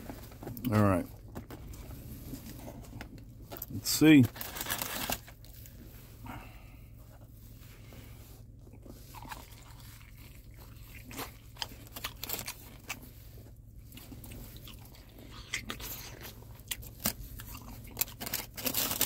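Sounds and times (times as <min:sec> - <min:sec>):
crunchy chewing: 0:08.6 - 0:19.0.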